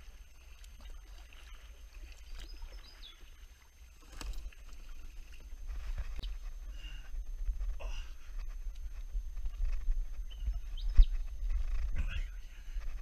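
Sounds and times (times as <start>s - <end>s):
paddle splashing in water: 0.0s - 6.4s
steady low rumble: 4.6s - 13.0s.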